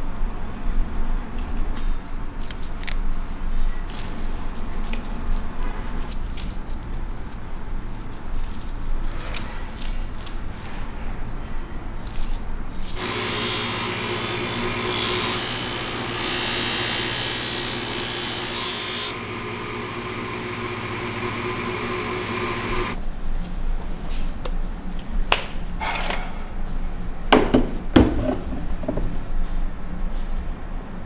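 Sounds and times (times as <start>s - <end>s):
abrasive wheel grinding wood: 13.0s - 23.0s
motor hum: 13.0s - 23.0s.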